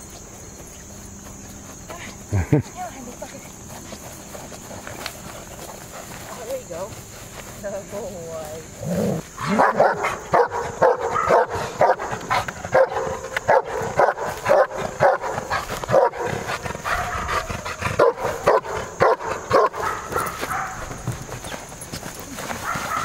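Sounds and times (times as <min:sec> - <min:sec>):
dog barking deeply: 0:09.4 - 0:12.1.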